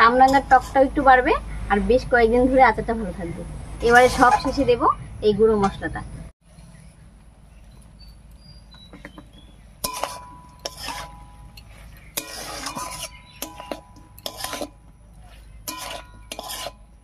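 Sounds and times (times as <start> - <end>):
metal spatula scraping a pan: 0.0 - 1.5, 3.8 - 4.7, 9.8 - 17.0.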